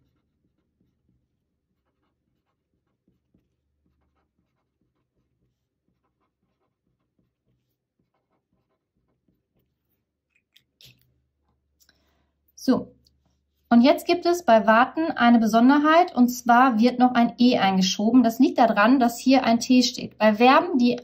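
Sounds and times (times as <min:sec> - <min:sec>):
pen scratching on paper: 0:00.0 - 0:10.3, 0:11.1 - 0:11.8, 0:13.1 - 0:14.3.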